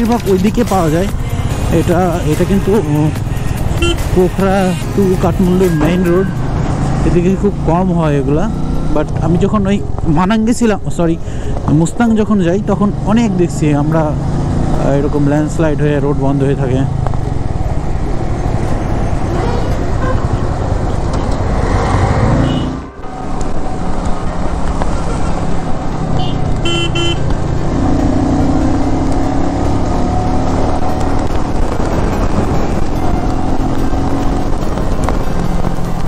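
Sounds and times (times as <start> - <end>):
motorcycle engine: 0.0 - 10.4, 12.4 - 36.0
motorcycle horn honk: 3.8 - 4.1, 19.4 - 20.4, 22.4 - 23.0, 26.2 - 27.3
wind rush: 29.5 - 36.0.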